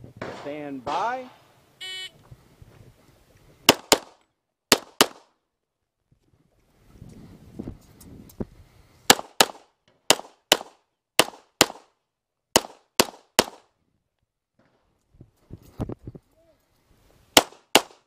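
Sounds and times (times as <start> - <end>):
pistol shots: 3.7 - 5.3, 9.1 - 11.9, 12.5 - 13.6, 17.4 - 18.0.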